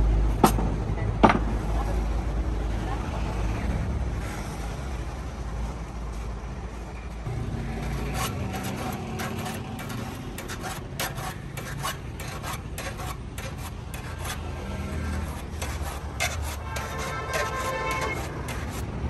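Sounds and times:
file rasping on saw teeth: 7.8s - 19.0s.

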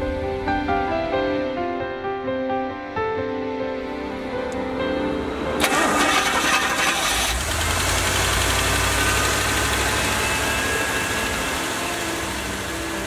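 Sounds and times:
car engine idling: 5.6s - 13.0s.

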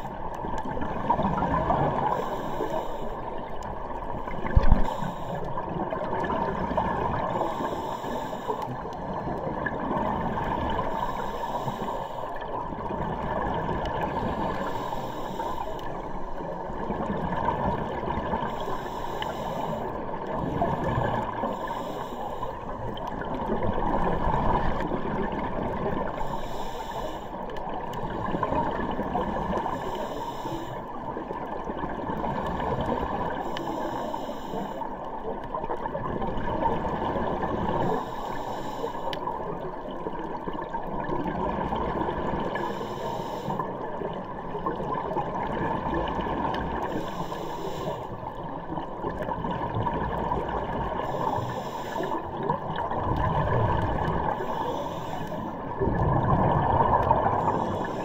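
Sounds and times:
underwater rush: 0.0s - 58.0s
regulator breathing hiss: 2.1s - 3.3s, 4.7s - 5.6s, 7.4s - 8.7s, 10.8s - 12.4s, 14.3s - 16.2s, 18.4s - 19.9s, 21.4s - 22.7s, 26.1s - 27.4s, 29.6s - 30.9s, 33.3s - 34.9s, 37.8s - 39.2s, 42.6s - 43.7s, 46.8s - 48.2s, 51.0s - 52.2s, 54.3s - 55.6s, 57.4s - 58.0s.

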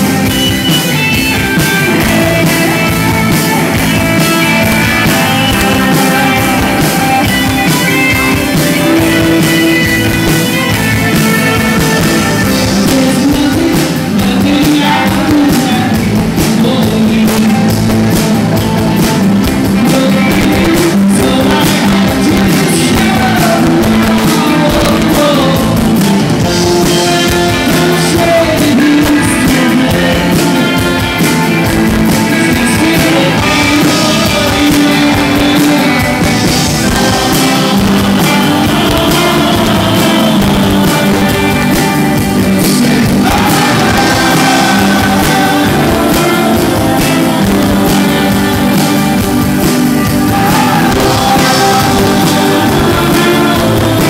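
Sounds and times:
drum kit: 0.0s - 54.0s
electric guitars: 0.0s - 54.0s
man singing: 0.0s - 54.0s
woman singing: 32.4s - 49.4s, 50.1s - 54.0s.

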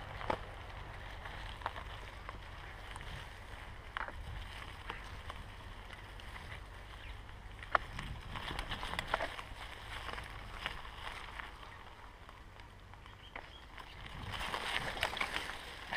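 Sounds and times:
bike rolling rumble: 0.0s - 15.9s.

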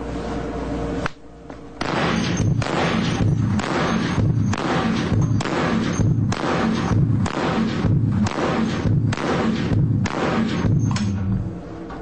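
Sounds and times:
rifle shots echoing: 1.8s - 11.2s.

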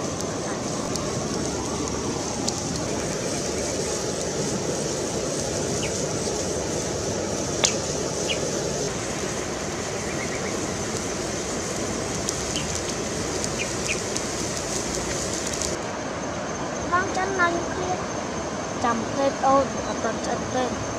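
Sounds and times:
water bubbling in a wok: 0.0s - 15.8s
wood fire crackling: 0.0s - 15.9s.

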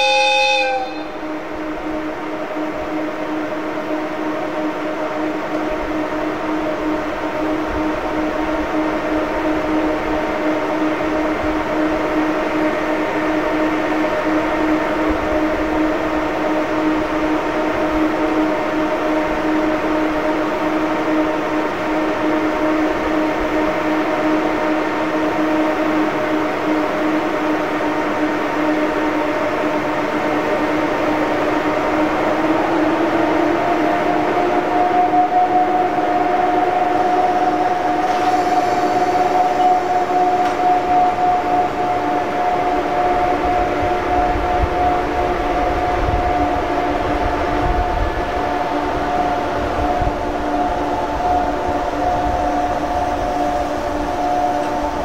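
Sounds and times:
locomotive machinery whine: 0.0s - 55.0s
rushing noise: 29.1s - 55.0s.

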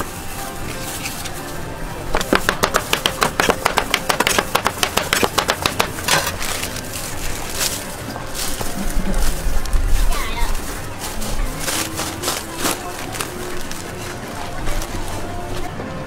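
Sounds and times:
knife chopping on cutting board: 2.2s - 6.3s.

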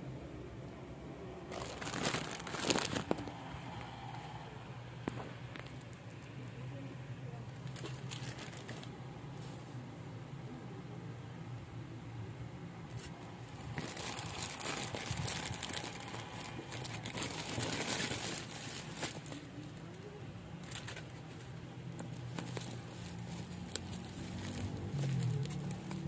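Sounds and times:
plastic packaging crinkling: 1.5s - 3.3s, 7.6s - 9.0s, 13.6s - 19.9s, 20.6s - 26.0s.

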